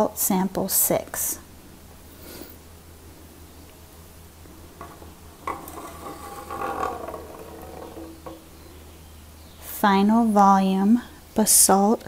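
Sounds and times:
rock knocking into cylinder: 4.8s - 8.7s.

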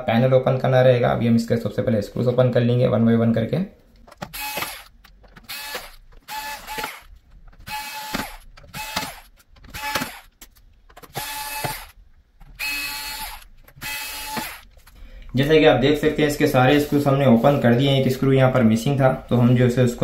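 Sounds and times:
electric screwdriver whirring: 4.2s - 10.3s, 11.0s - 14.7s.

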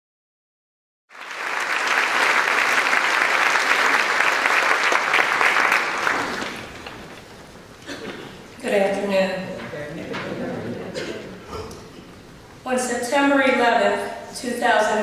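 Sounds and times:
audience applauding: 1.1s - 7.3s.

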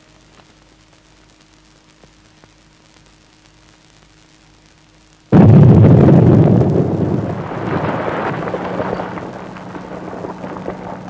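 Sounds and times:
loud explosive blast: 5.3s - 11.0s
rock debris clattering: 7.0s - 11.0s.

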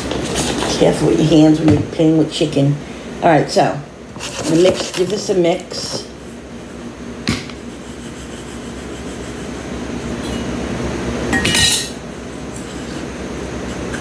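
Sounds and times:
utensils clattering: 11.4s - 13.0s.

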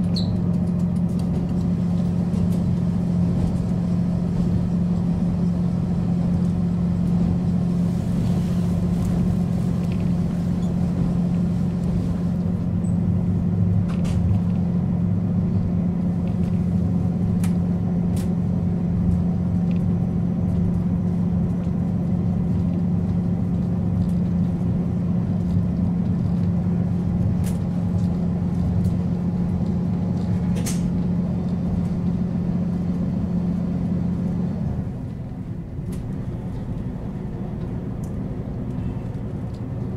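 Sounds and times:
diesel railcar engine idling: 0.0s - 39.9s.

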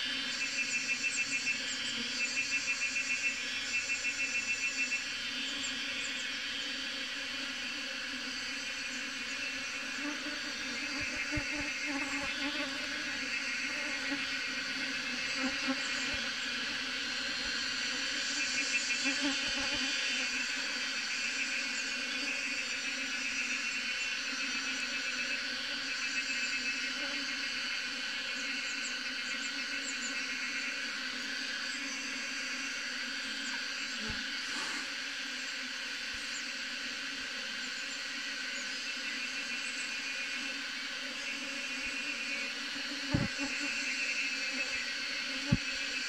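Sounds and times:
bee swarm buzzing: 10.0s - 20.6s, 41.1s - 46.0s.

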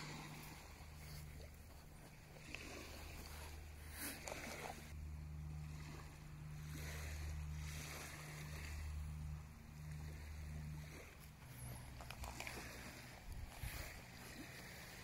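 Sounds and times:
small waves washing on shore: 0.0s - 15.0s
wind rumbling on microphone: 4.4s - 15.0s.

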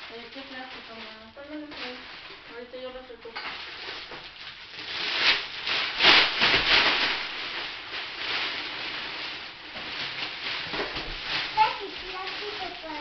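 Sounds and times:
kitchen things rustling and rubbing: 0.0s - 13.0s.

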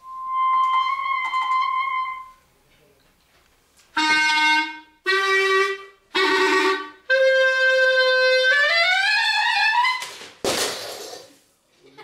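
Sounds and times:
clarinet notes: 0.0s - 2.5s, 3.9s - 10.2s.

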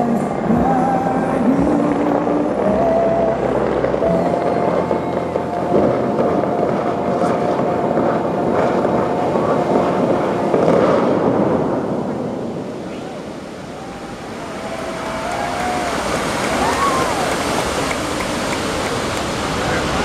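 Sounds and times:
music from loudspeakers: 0.0s - 11.2s
fountain water jets rushing: 0.0s - 20.0s.

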